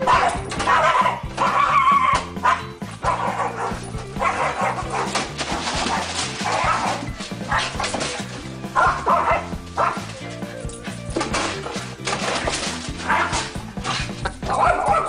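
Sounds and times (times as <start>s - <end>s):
small dog yapping: 0.0s - 5.1s, 5.7s - 8.1s, 8.8s - 10.0s, 13.0s - 15.0s
upbeat background music: 0.0s - 15.0s.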